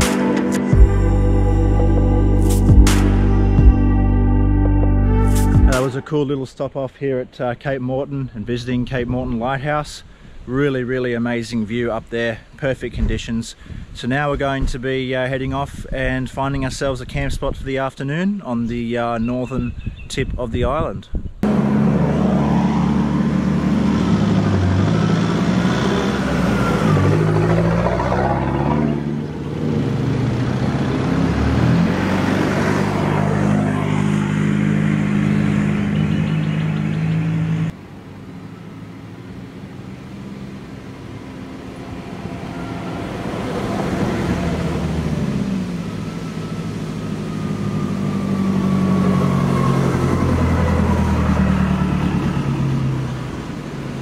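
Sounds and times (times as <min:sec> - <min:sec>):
vehicles driving past on sand: 0:21.4 - 0:54.0.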